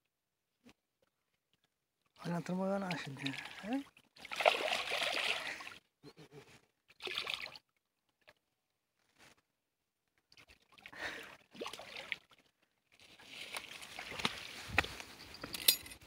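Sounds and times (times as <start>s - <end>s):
shallow water splashing: 1.5s - 5.8s, 10.3s - 14.6s.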